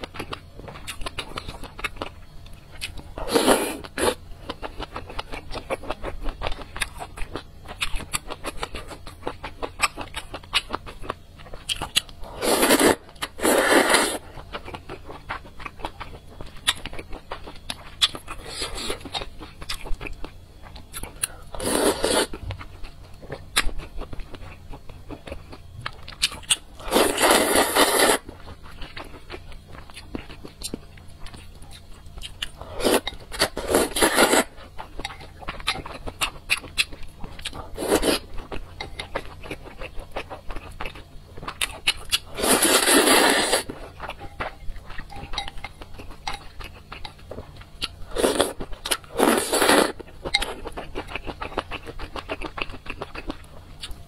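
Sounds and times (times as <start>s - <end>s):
soft chewing and mouth clicks: 0.0s - 54.0s
loud noodle slurps: 12.4s - 14.2s, 21.6s - 22.3s, 26.9s - 28.2s, 42.4s - 43.7s.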